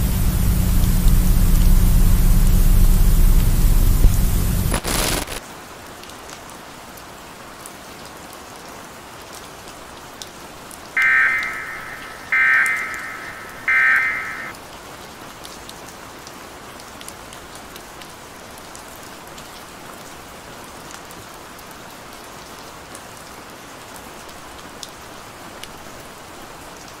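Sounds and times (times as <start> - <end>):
steady rain-like hiss: 0.0 - 27.0
buzzing electronic data tone: 11.0 - 14.5.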